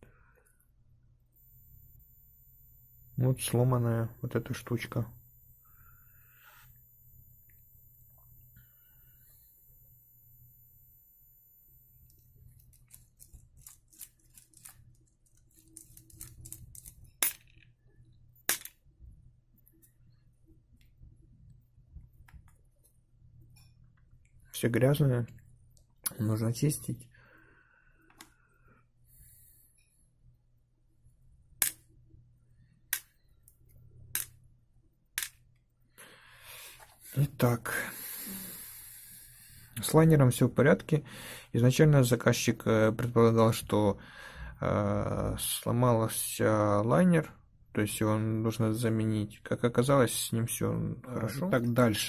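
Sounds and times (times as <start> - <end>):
screwdriver clicks and scrapes: 12.6 - 17.7.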